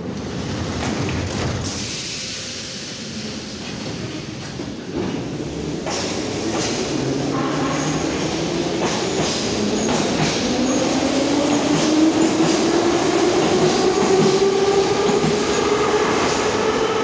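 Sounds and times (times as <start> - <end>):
rail joint clicks: 5.8 - 7.6, 8.7 - 10.8.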